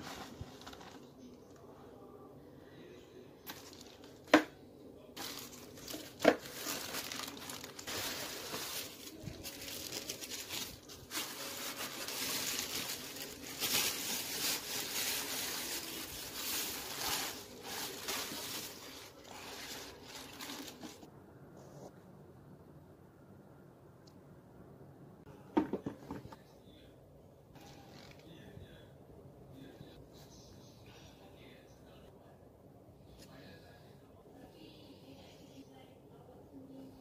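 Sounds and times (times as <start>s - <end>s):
paper and plastic rustling: 0.0s - 1.6s, 3.4s - 4.5s, 5.2s - 21.1s.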